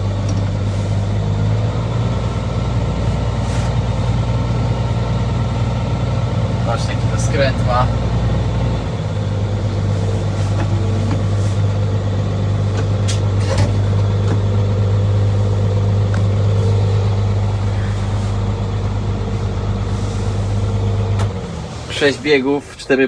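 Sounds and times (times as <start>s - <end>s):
tractor diesel engine running: 0.0s - 23.0s.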